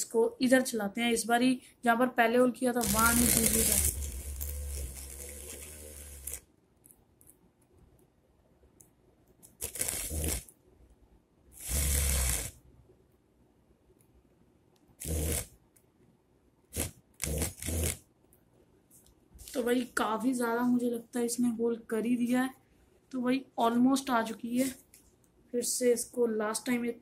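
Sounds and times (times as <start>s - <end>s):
small drill cutting foam: 2.8s - 6.4s, 9.6s - 10.4s, 11.6s - 12.6s, 15.0s - 15.5s, 16.8s - 18.0s.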